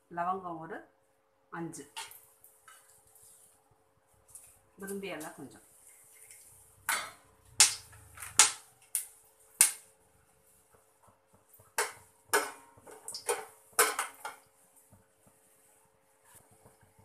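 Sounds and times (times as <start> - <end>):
spices crackling in hot oil: 1.8 - 17.0.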